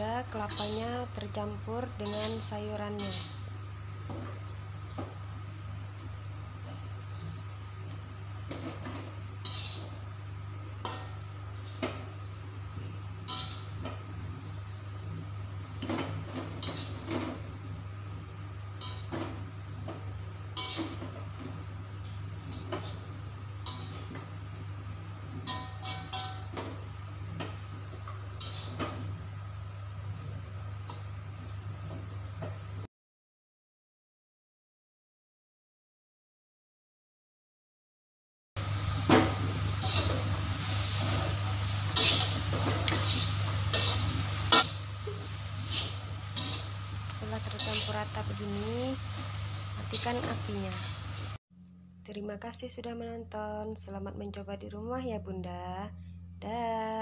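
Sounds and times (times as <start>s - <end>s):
steady low hum: 0.0s - 32.0s, 38.6s - 57.0s
spatula scraping metal wok: 0.2s - 1.0s, 2.0s - 3.4s, 9.4s - 10.0s, 13.2s - 13.8s, 15.8s - 17.3s, 20.5s - 21.1s, 22.4s - 24.1s, 25.4s - 26.5s, 28.3s - 29.0s, 39.2s - 51.0s.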